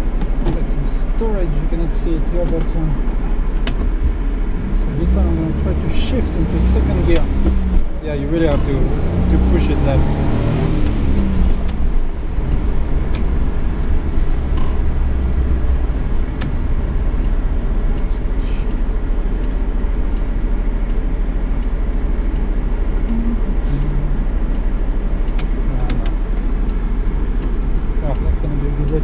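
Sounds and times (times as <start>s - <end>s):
road noise: 0.0s - 29.0s
van engine droning: 0.0s - 29.0s
faint clicks and knocks: 24.2s - 29.0s.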